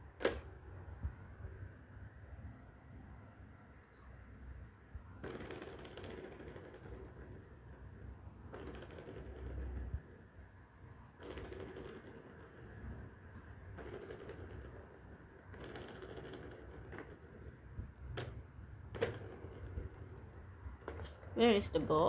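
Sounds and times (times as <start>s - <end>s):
plastic balls rattling on tracks: 5.2s - 10.2s, 11.2s - 21.9s.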